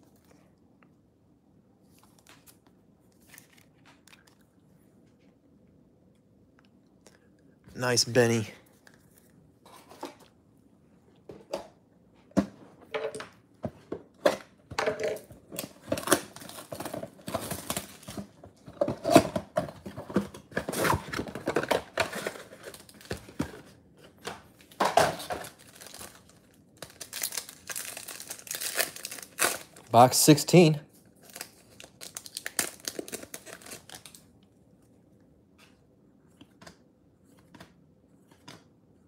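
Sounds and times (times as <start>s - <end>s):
plastic wrap crinkling and tearing: 15.5s - 18.4s, 24.6s - 29.9s, 31.1s - 34.3s.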